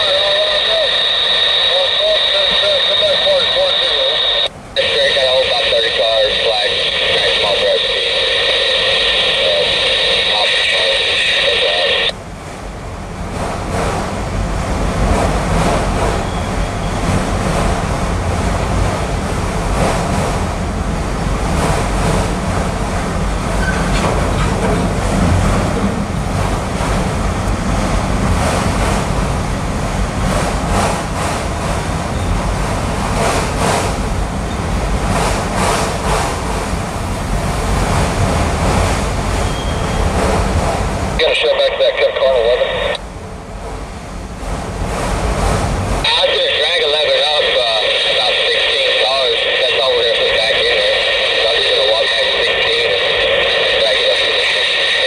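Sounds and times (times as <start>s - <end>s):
train wheels rumbling on track: 11.5s - 41.2s, 43.0s - 46.4s.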